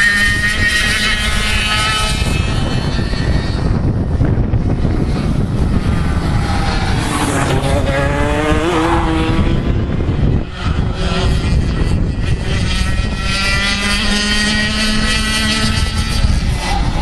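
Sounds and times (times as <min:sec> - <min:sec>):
kart engine revving: 0:00.0 - 0:17.0.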